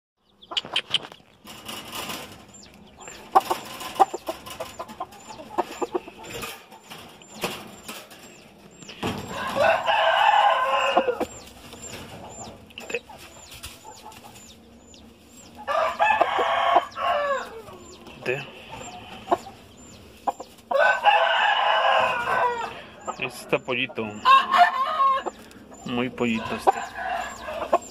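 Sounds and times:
chicken clucks: 0.3s - 27.9s
rooster crowing: 9.1s - 11.4s, 15.6s - 18.0s, 20.7s - 23.0s, 24.2s - 25.4s, 26.2s - 27.9s.

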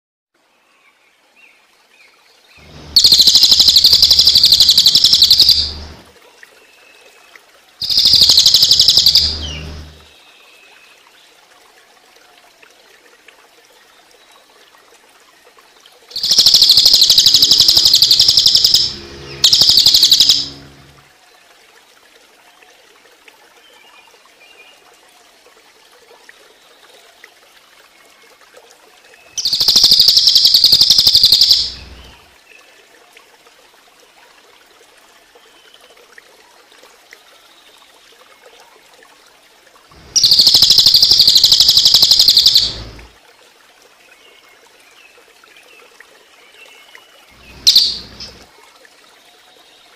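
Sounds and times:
running water: 0.4s - 49.9s
jay rattling call: 2.6s - 6.0s, 7.8s - 10.1s, 16.2s - 20.9s, 29.4s - 32.2s, 40.0s - 43.1s, 47.4s - 48.5s.

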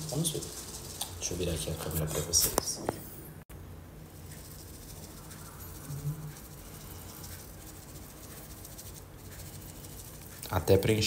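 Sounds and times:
starch grains pattering: 0.0s - 2.6s, 4.0s - 11.0s
sieve tapping ticks: 4.2s - 11.0s.

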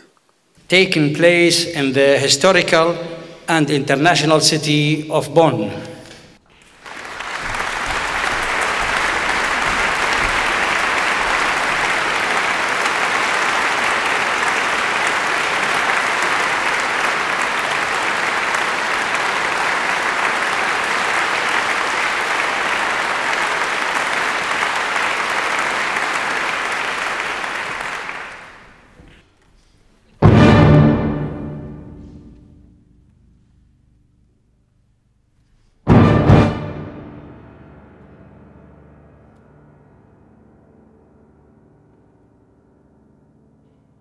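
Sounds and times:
audience applauding: 6.1s - 29.2s.

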